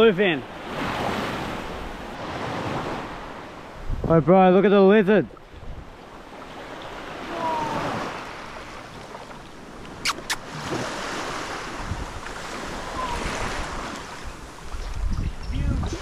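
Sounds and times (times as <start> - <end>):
water lapping at shore: 0.0 - 3.9, 4.8 - 16.0
wind buffeting microphone: 2.6 - 4.3, 5.5 - 6.0, 10.5 - 16.0.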